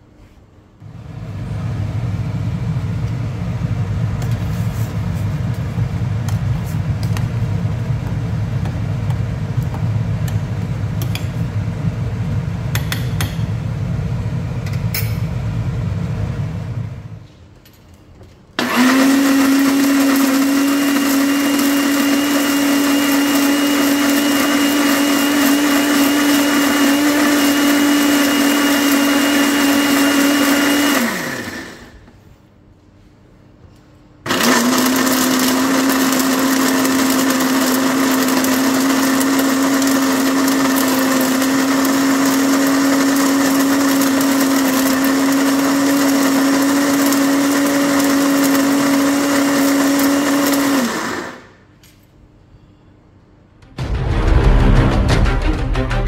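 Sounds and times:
electric blender motor grinding: 18.6s - 31.9s, 34.3s - 51.5s.

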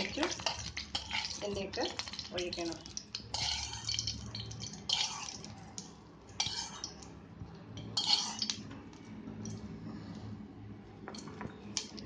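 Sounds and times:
spoon scraping cooking pan: 0.0s - 5.5s, 6.3s - 7.2s, 7.8s - 8.6s.

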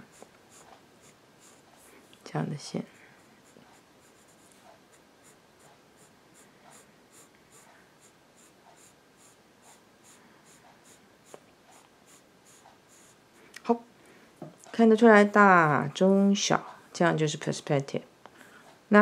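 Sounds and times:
pencil scratching on paper: 0.0s - 2.0s, 2.8s - 13.2s.

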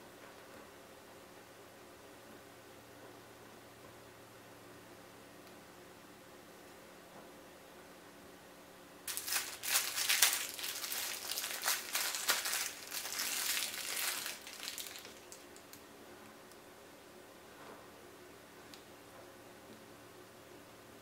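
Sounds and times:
plastic wrapper crinkling: 9.1s - 15.8s.

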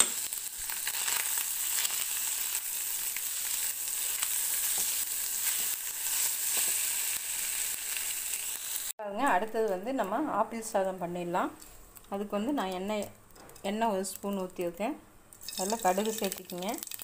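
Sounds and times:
rice sizzling in a pan: 0.0s - 9.0s.

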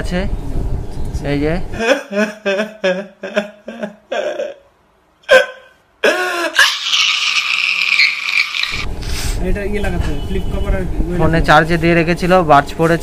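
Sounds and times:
man sobbing: 1.7s - 8.0s
man wailing: 1.8s - 4.7s, 5.3s - 8.7s.

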